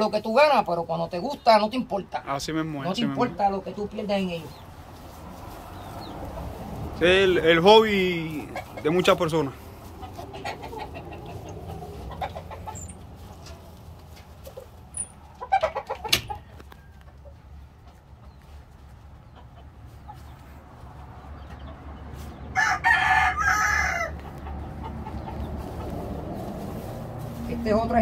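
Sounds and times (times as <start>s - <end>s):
hen clucking: 0.0s - 28.0s
rooster crowing: 22.5s - 25.0s.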